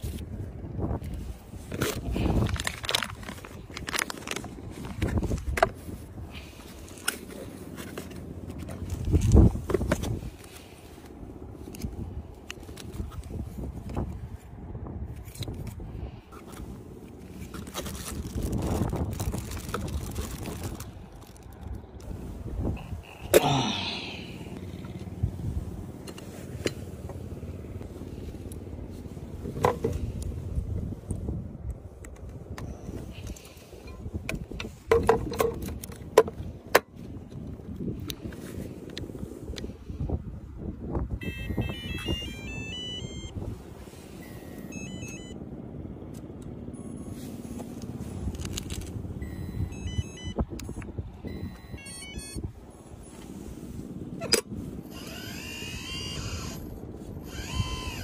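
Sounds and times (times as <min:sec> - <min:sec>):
low steady rumble: 0:00.0 - 0:58.0
outdoor background noise: 0:00.0 - 0:58.0
electronic beep melodies: 0:41.2 - 0:43.3, 0:44.2 - 0:45.4, 0:49.2 - 0:52.4.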